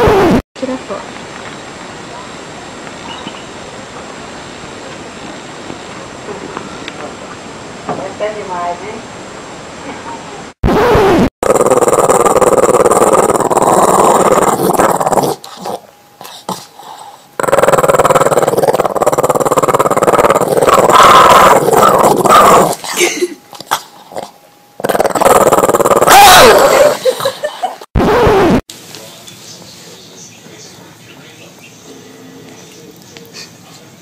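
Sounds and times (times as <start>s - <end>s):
dog growling: 11.4s - 23.0s, 23.6s - 27.3s.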